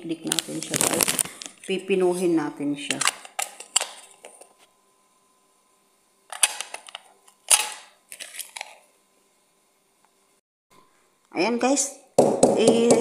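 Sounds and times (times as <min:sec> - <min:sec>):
plastic bag crinkling: 0:00.2 - 0:01.9, 0:06.4 - 0:08.9.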